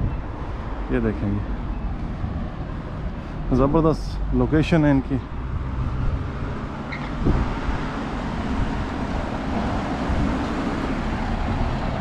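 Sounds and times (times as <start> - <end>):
wind on microphone: 0.0 - 0.8, 5.3 - 12.0
car and van driving past: 5.3 - 12.0.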